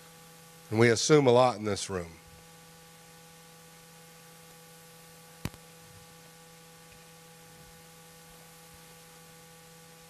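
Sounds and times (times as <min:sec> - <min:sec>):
faint electrical hum: 0:00.0 - 0:10.0
light hiss: 0:04.5 - 0:10.0.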